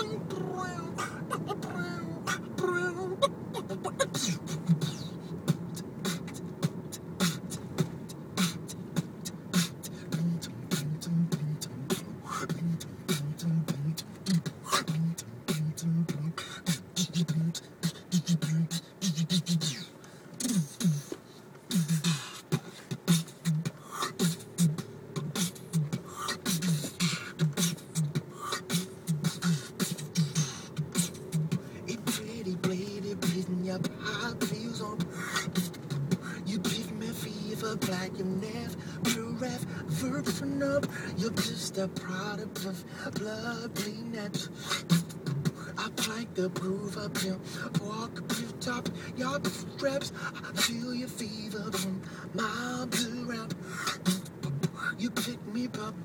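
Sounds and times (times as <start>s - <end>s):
hummed bass line: 0.0s - 19.7s, 22.9s - 44.2s
beatboxing clicks and snare bursts: 0.0s - 38.4s, 39.0s - 56.0s.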